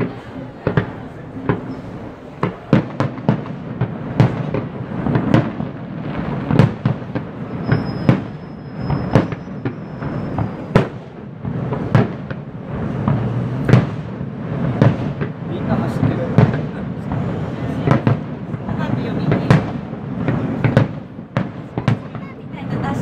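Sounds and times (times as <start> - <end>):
fireworks bangs: 0.0 - 23.0
thin whistle: 7.6 - 10.7.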